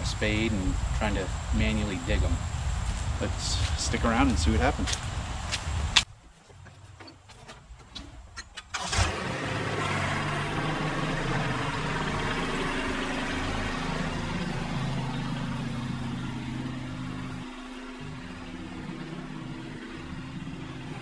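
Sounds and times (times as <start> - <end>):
tractor diesel engine running: 6.4 - 21.0.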